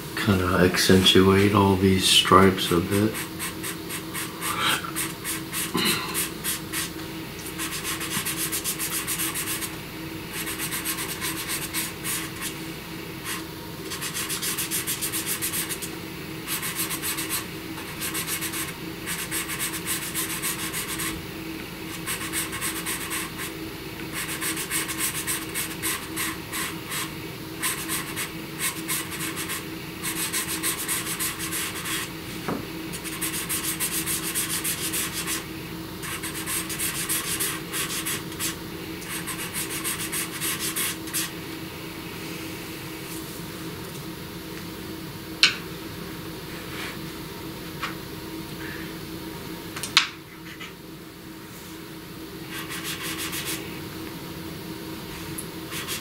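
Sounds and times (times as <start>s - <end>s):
pencil scratching on paper: 3.1s - 6.9s, 7.6s - 9.7s, 10.4s - 12.5s, 13.2s - 15.9s, 16.5s - 21.1s, 21.9s - 23.5s, 24.1s - 32.1s, 32.9s - 35.4s, 36.0s - 41.3s, 52.5s - 53.6s, 55.7s - 56.0s.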